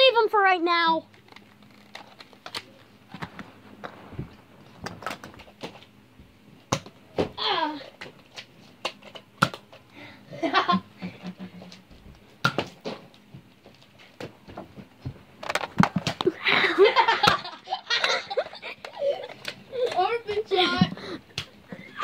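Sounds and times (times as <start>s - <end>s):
children giggling and laughing: 10.3s - 11.7s, 16.2s - 20.0s.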